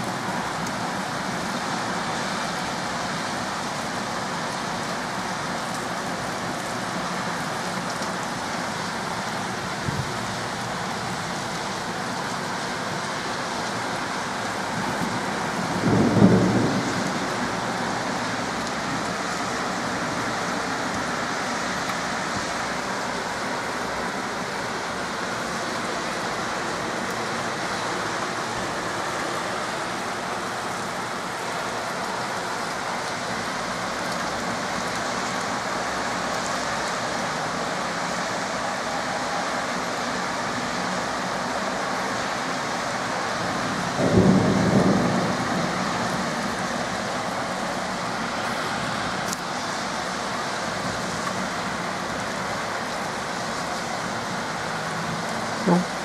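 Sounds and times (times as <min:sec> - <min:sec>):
heavy rain pouring: 0:00.0 - 0:56.0
thunderclap: 0:15.8 - 0:17.5, 0:43.8 - 0:46.5.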